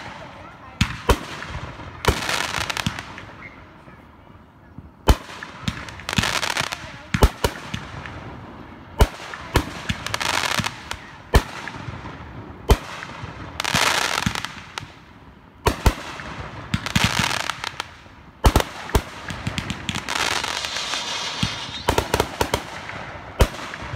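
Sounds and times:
crackling hiss of fireworks: 0.0 - 23.9
firework booms: 18.4 - 23.9.

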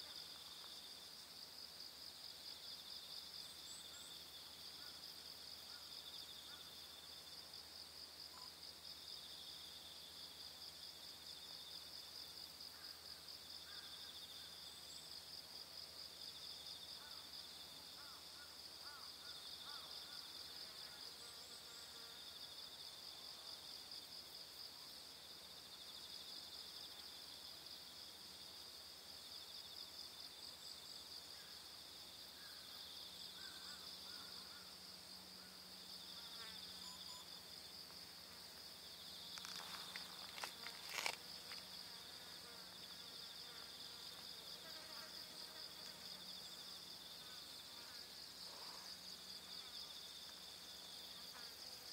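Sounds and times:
insects buzzing trill: 29.3 - 51.9.

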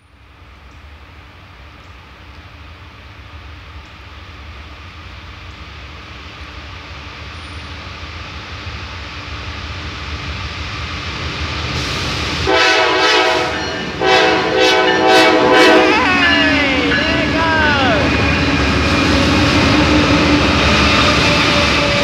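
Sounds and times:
diesel locomotive rumble: 0.1 - 22.0
locomotive air horn blasts: 12.5 - 18.4.

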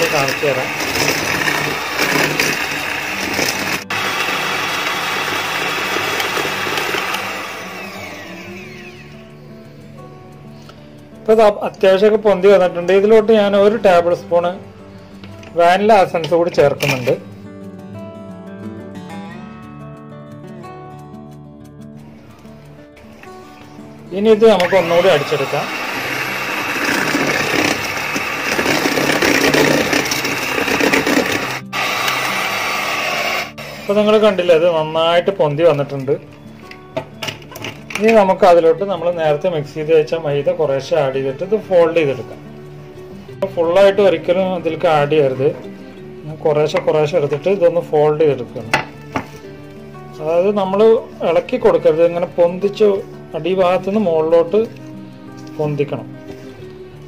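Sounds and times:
electric hand mixer whirring: 0.0 - 9.3, 24.4 - 34.8.

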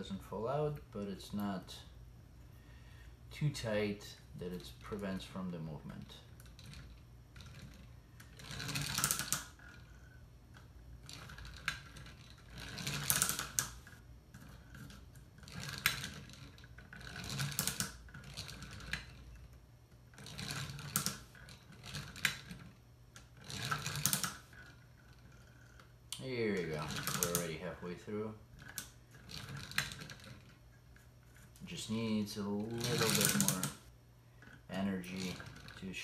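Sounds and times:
wooden parts clicking and clattering: 10.6 - 19.6, 20.2 - 25.9, 26.5 - 27.6, 28.6 - 35.9.

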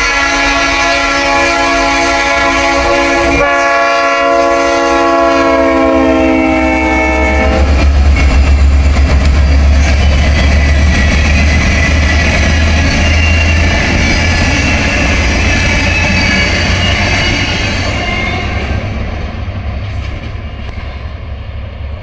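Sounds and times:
locomotive air horn chord: 0.0 - 7.8
train cars rumbling past: 0.0 - 22.0.

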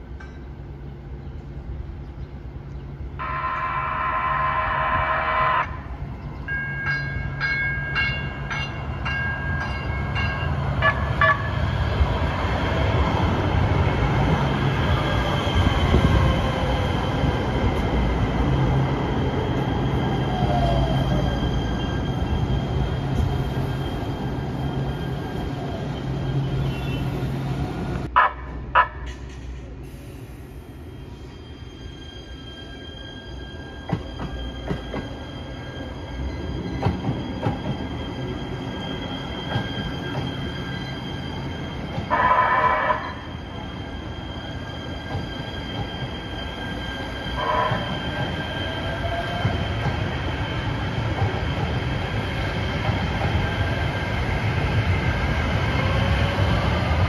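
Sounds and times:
train pulling away whine: 2.4 - 57.0
train horn blast: 3.2 - 5.9, 42.1 - 43.2, 47.4 - 47.9
train high-pitched tones: 3.2 - 12.0, 14.3 - 29.3, 29.9 - 53.9.

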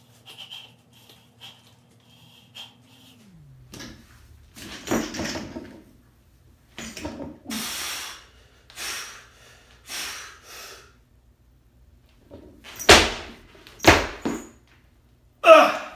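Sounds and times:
man breathing heavily: 0.0 - 3.4, 7.5 - 11.0.

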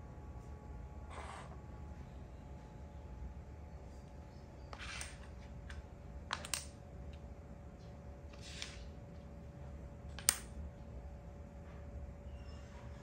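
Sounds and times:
chess pieces clicking on board: 4.8 - 6.7.

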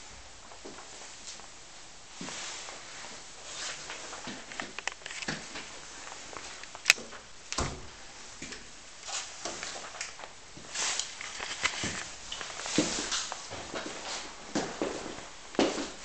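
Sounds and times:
footsteps on wooden floor: 11.7 - 16.0.

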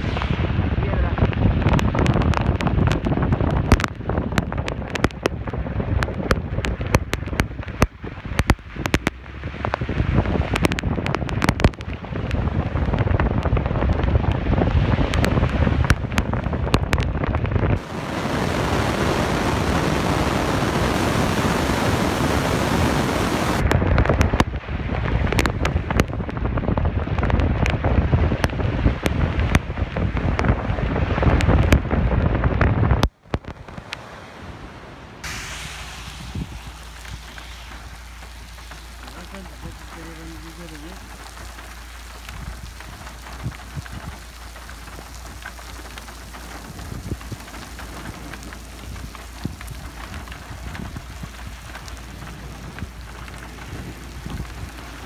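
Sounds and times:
hail and rain on car roof: 0.0 - 33.6, 35.2 - 55.0
low car rumble: 0.0 - 55.0
steady loud hiss: 17.8 - 23.6, 35.2 - 55.0.

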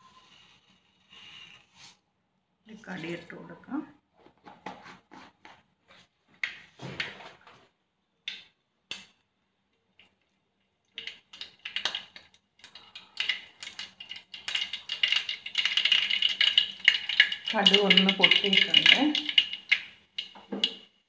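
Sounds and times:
seeds popping in hot oil: 8.3 - 9.2, 9.8 - 21.0.

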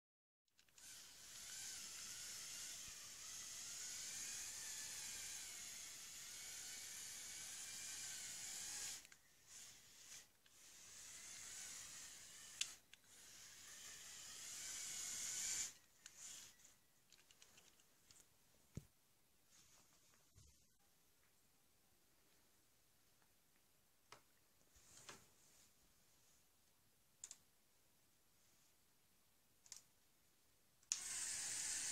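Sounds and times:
toy electric motor whining: 0.6 - 16.7, 30.9 - 31.9.

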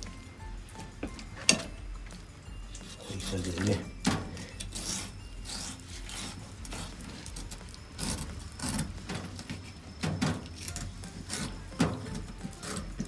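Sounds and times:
knife scraping on cutting board: 4.4 - 7.3.

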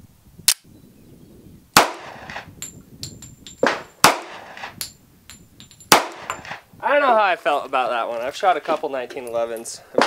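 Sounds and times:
pistol shots: 1.8 - 2.5, 3.6 - 4.7, 5.9 - 6.6.

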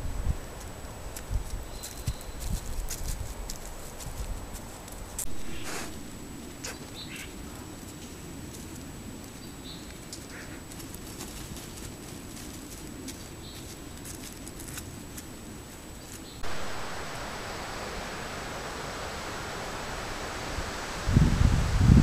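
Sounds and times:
background hiss: 0.0 - 22.0
loud rushing hiss: 5.3 - 7.5, 16.4 - 22.0.

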